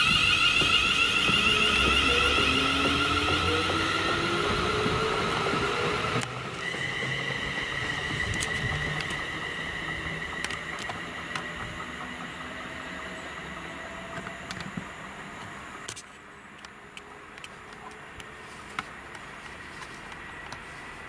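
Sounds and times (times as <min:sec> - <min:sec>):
electric train whine and rumble: 0:00.0 - 0:21.0.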